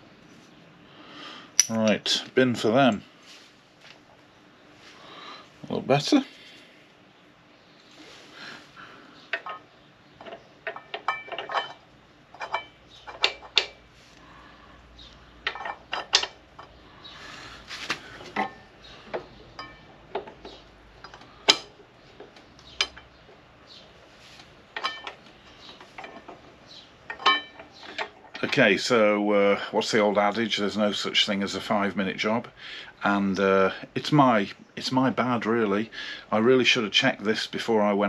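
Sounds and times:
metal tools clinking and scraping: 1.6s - 2.0s, 9.3s - 13.8s, 15.4s - 16.8s, 18.1s - 21.8s, 22.6s - 23.2s, 24.3s - 28.7s.

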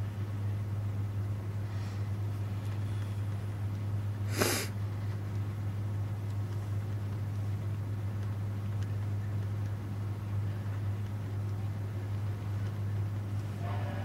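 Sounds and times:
steady low hum: 0.0s - 14.0s
snort of air: 4.3s - 4.8s.

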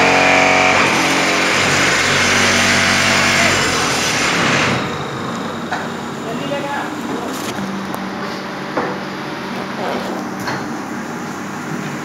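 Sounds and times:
block making machine running: 0.0s - 7.9s.

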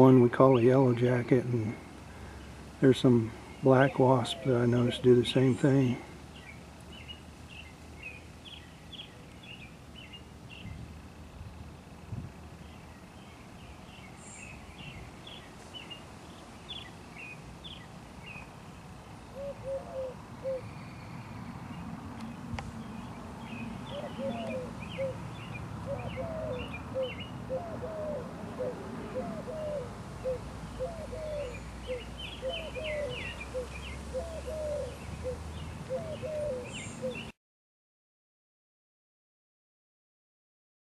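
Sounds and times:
birds chirping: 0.0s - 37.4s
low-pitched bird call: 19.3s - 21.5s, 22.9s - 25.2s, 25.8s - 37.3s.

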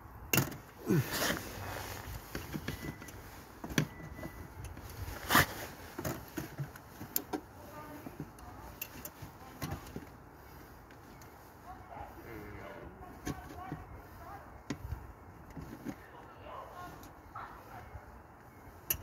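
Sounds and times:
clothing rubbing on microphone: 0.9s - 18.8s
clicks and knocks of engine work: 2.1s - 10.2s.

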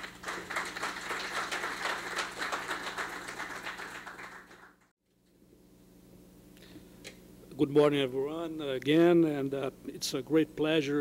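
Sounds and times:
audience applauding: 0.0s - 4.9s
faint room hum: 0.0s - 11.0s.

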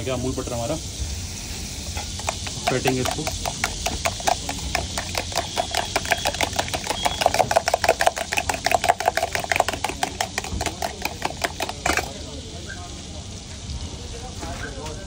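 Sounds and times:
spoon clinking in steel tumbler: 2.1s - 12.2s.

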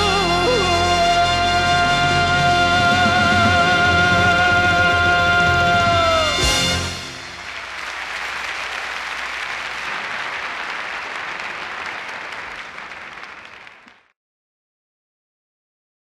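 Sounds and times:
concert audience applauding: 2.2s - 14.1s.

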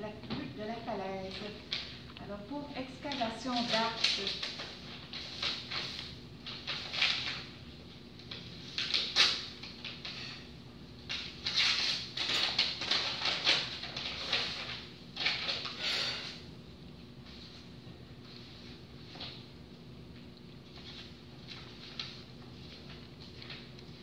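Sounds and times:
paper rustling and shuffling: 2.7s - 16.4s, 20.2s - 24.0s.

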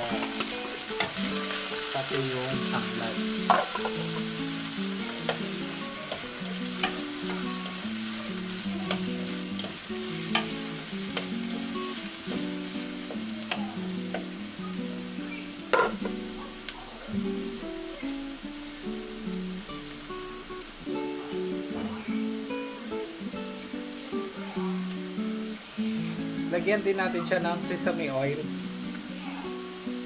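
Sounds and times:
food sizzling in oil: 0.0s - 30.0s
soft plucked background music: 0.0s - 30.0s
plastic spatula tapping pan: 3.4s - 4.0s, 8.8s - 11.5s, 12.2s - 14.4s, 15.7s - 16.8s.

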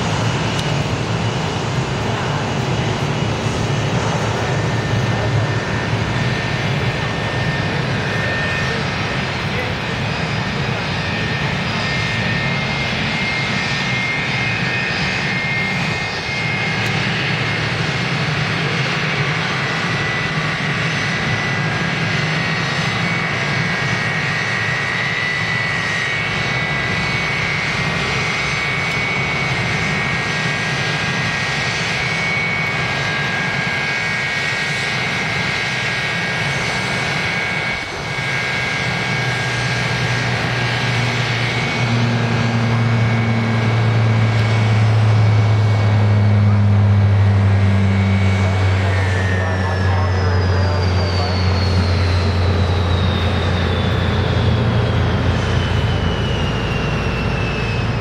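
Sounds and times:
jet engines droning and whining: 0.0s - 58.0s
turboprop plane passing overhead: 0.0s - 58.0s.

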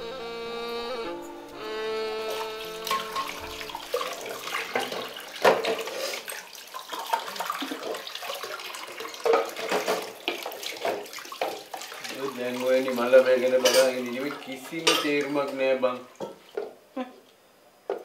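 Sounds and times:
held string note: 0.0s - 4.0s
tap water running into sink: 2.3s - 16.7s
dishes clattering: 2.8s - 6.0s, 9.2s - 11.8s, 13.6s - 14.2s, 14.8s - 15.6s.

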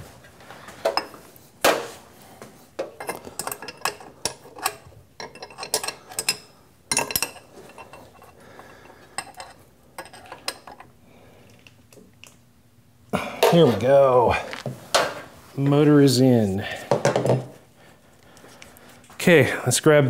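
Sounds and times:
wrenches and metal parts clinking: 2.8s - 10.9s.

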